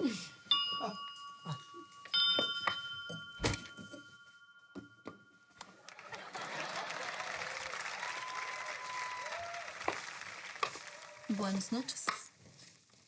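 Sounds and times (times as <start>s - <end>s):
electronic doorbell chime: 0.0s - 5.6s.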